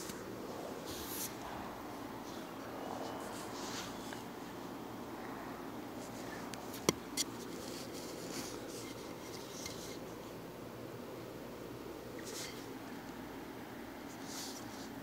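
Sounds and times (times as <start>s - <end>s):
phone rubbing on microphone: 7.2s - 10.0s.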